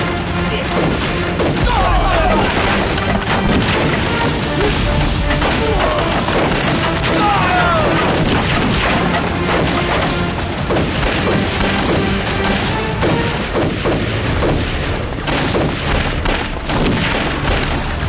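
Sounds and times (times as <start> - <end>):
dramatic music score: 0.0 - 18.0
gunshots: 0.0 - 18.0
explosion booms: 0.8 - 17.8.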